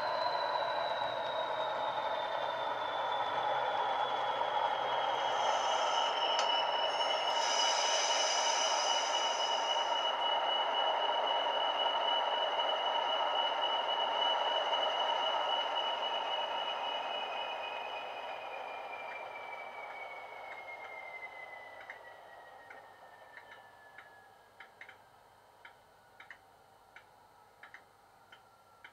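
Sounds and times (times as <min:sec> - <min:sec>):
turbocharger whistle falling: 0:00.0 - 0:24.3
high hiss: 0:04.9 - 0:12.5.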